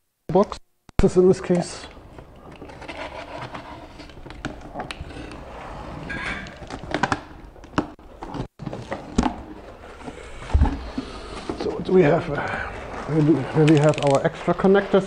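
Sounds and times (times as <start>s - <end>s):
cardboard and foam rustling: 8.1s - 15.0s.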